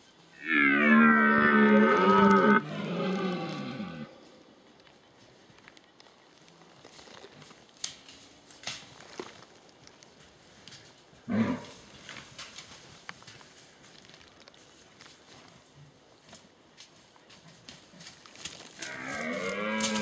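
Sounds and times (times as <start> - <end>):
deer stag roaring: 0.4 - 4.3, 11.3 - 11.8, 18.8 - 20.0
twigs cracking: 4.7 - 11.1, 11.7 - 15.4, 17.7 - 20.0.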